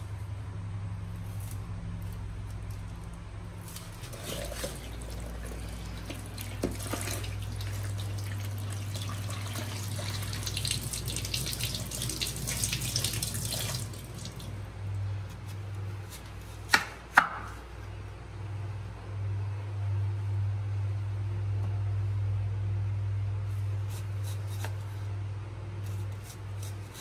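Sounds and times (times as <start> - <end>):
tap water running and splashing: 4.1 - 14.6.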